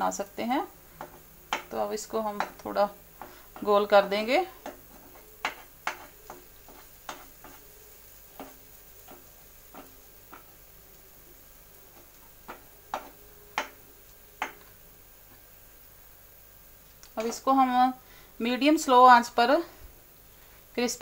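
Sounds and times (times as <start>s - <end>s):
batter sizzling: 0.0s - 21.0s
ladle tapping and scraping pan: 4.6s - 7.7s, 8.4s - 10.6s.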